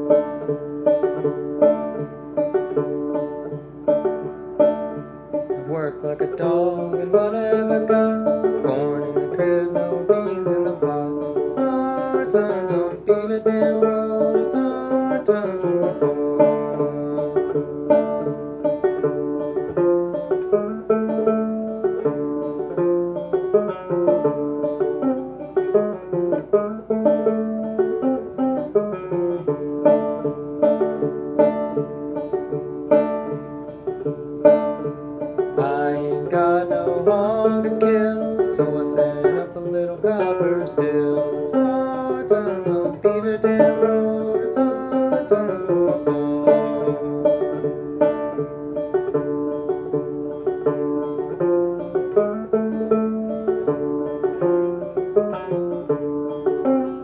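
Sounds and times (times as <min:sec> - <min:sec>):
banjo playing: 0:00.0 - 0:57.0.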